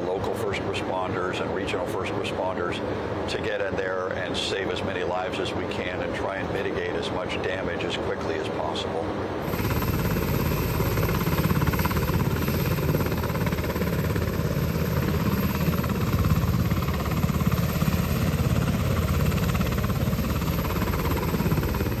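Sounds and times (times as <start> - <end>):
helicopter running: 0.0 - 22.0.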